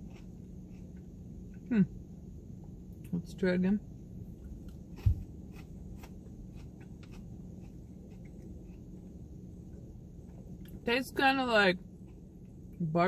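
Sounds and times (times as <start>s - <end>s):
person chewing crunchy food: 0.0s - 1.7s, 4.3s - 10.8s, 11.9s - 12.8s.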